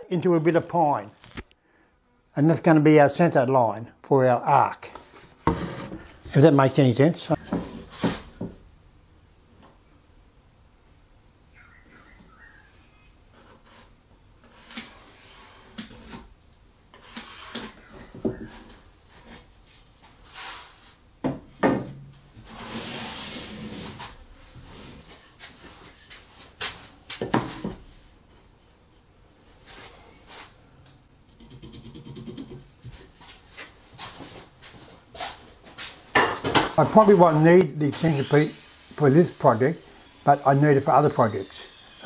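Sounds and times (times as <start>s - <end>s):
wood scraping on wood: 4.9s - 6.4s.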